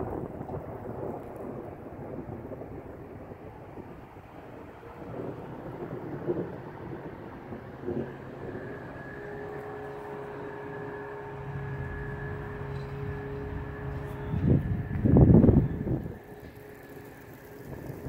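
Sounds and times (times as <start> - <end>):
engine drone: 0.0 - 18.0
low rumbling: 0.0 - 18.0.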